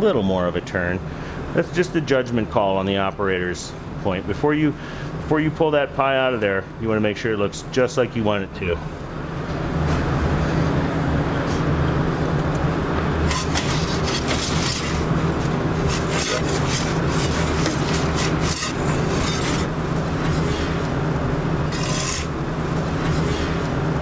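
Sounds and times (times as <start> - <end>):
oven low hum and rumble: 0.0 - 24.0
metal pizza peel scraping stone: 13.2 - 20.8, 21.6 - 23.6.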